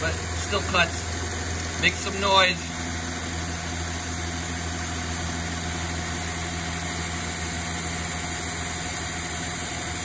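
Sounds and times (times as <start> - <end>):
milling machine cutting steel: 4.0 - 10.0.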